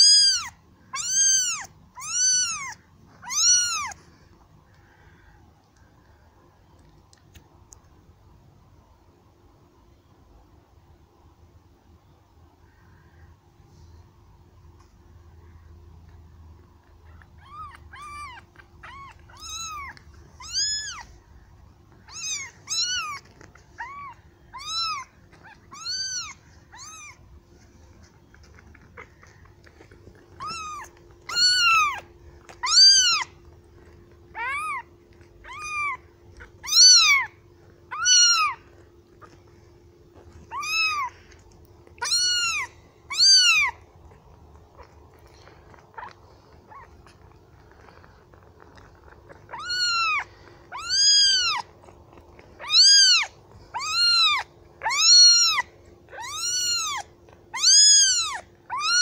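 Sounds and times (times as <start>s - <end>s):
kitten meowing: 0.0s - 4.0s, 17.0s - 21.2s, 22.0s - 27.2s, 28.5s - 39.4s, 40.1s - 48.0s, 48.6s - 59.0s.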